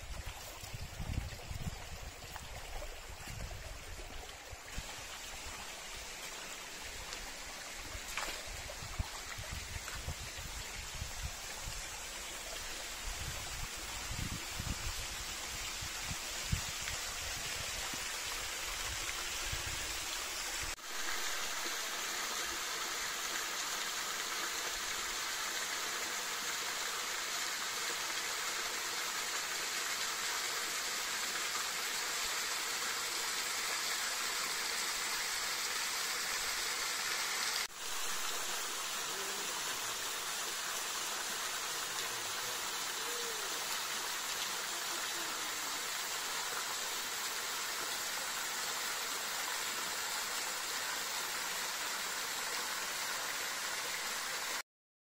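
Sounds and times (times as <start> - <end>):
stream rushing: 0.0 - 54.6.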